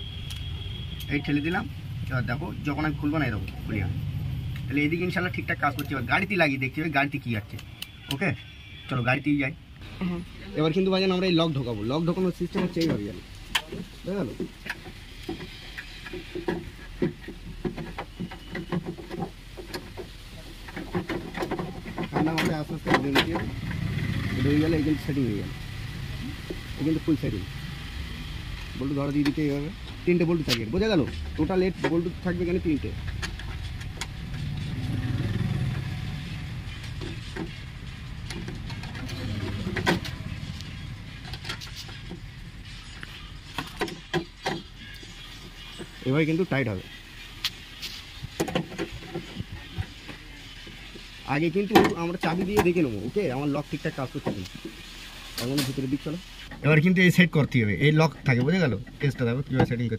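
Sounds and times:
vehicle rumble: 0.0s - 7.9s, 9.6s - 59.9s
sharp clicks and knocks: 12.5s - 23.8s, 29.1s - 34.8s, 36.7s - 42.3s, 43.5s - 45.0s, 48.3s - 52.8s.

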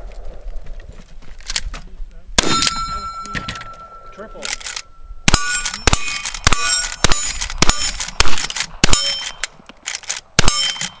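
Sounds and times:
rifle shots: 2.4s - 3.7s, 4.5s - 11.0s
steel plate ringing clang: 2.4s - 7.9s.

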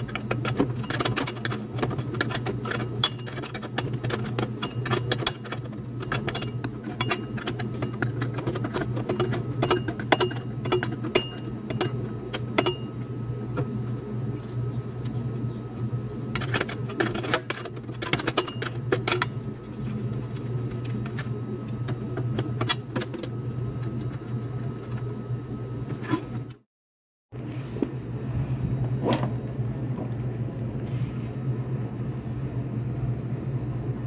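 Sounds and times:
spanner clicking on metal bolts: 0.0s - 12.9s
steady low hum: 0.0s - 26.7s, 27.3s - 34.0s.

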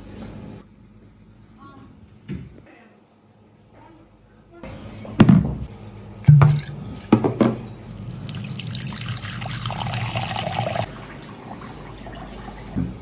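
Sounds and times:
liquor pouring into a bowl: 7.9s - 12.8s.

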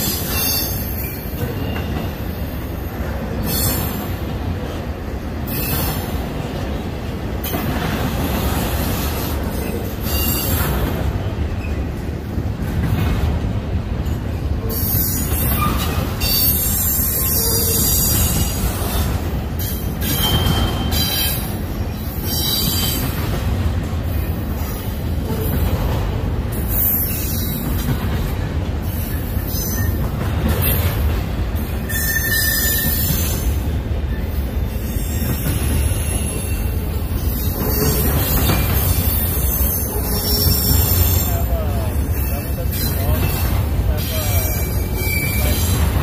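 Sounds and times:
train wheels rumbling on rail: 0.0s - 46.0s
high-pitched wheel squeals: 31.9s - 33.5s, 44.0s - 45.8s.

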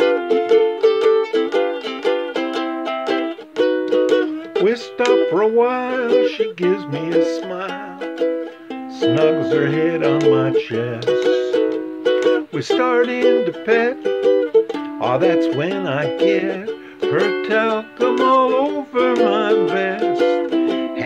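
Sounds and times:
ukulele strummed in swing rhythm: 0.0s - 21.0s
wordless vocal melody: 4.5s - 14.4s, 15.0s - 21.0s.

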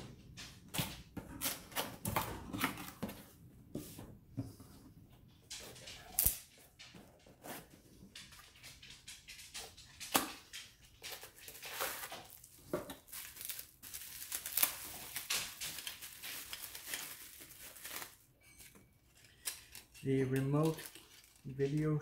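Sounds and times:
bubble wrap crinkling: 11.1s - 18.3s, 19.1s - 22.0s.

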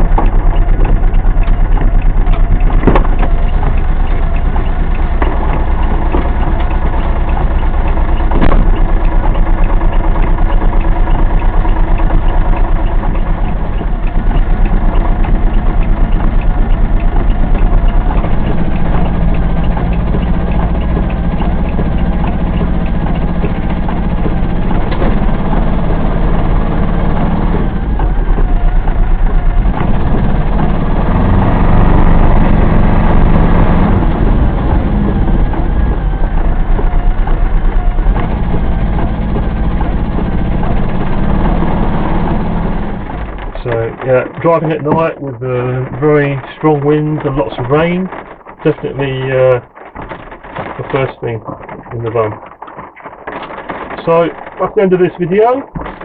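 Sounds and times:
sharp knocks: 0.0s - 28.6s
diesel engine running: 0.0s - 56.0s.

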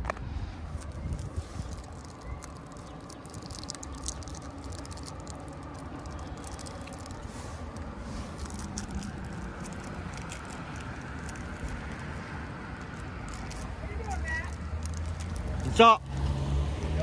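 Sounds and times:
car engine and tyre noise: 0.0s - 17.0s
steady low rumble: 0.0s - 17.0s
light crackling ticks: 0.8s - 11.8s.

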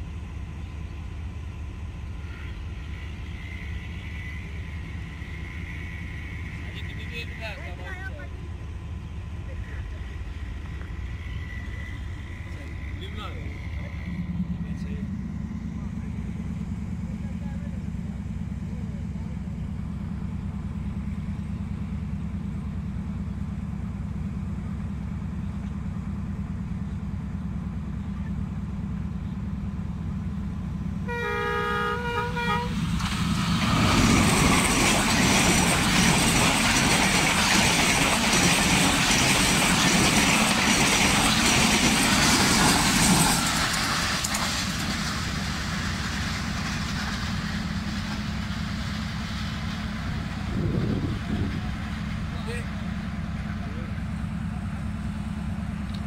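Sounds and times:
train rushing and clattering: 0.0s - 56.0s
locomotive horn blast: 31.0s - 32.9s.

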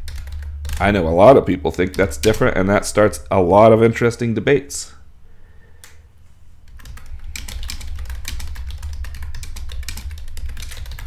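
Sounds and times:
computer keyboard typing: 0.0s - 1.0s, 1.7s - 2.6s, 6.6s - 11.0s
steady low hum: 0.0s - 11.0s.

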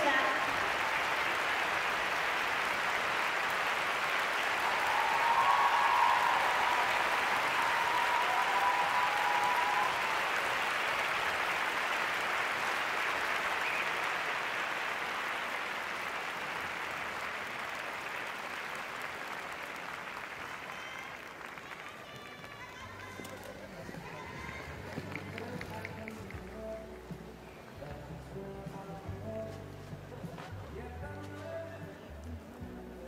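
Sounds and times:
crowd applauding: 0.0s - 27.6s.

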